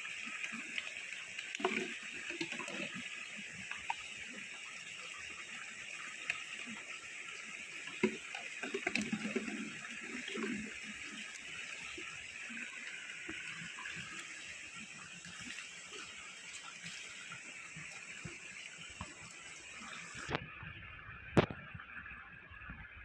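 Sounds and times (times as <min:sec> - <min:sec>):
stream running over rocks: 0:00.0 - 0:20.4
plastic bottles knocking and crinkling: 0:07.9 - 0:09.8.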